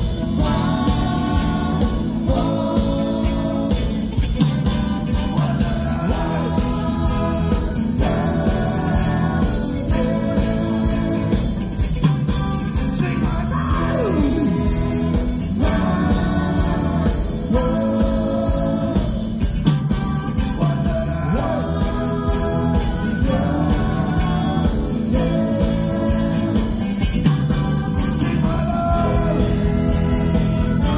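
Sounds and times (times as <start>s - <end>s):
live rock band playing: 0.0s - 30.9s
person singing: 12.8s - 30.9s.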